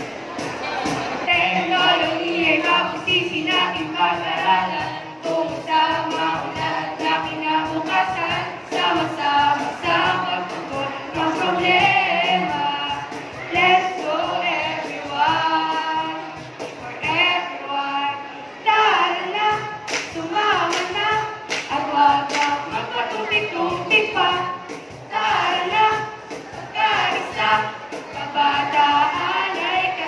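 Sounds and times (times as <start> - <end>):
group singing in chorus: 0.0 - 30.0
sharp claps: 19.8 - 22.6.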